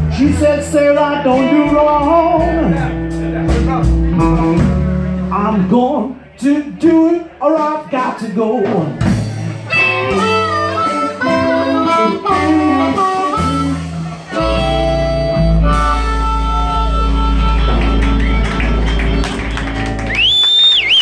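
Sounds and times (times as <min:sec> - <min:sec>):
blues band playing: 0:00.0 - 0:21.0
harmonica: 0:09.7 - 0:20.0.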